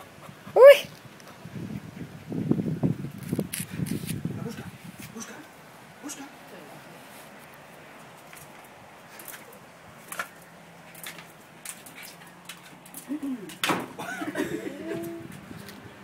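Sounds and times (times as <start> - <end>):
dog paws tapping on tiles: 7.4 - 13.8.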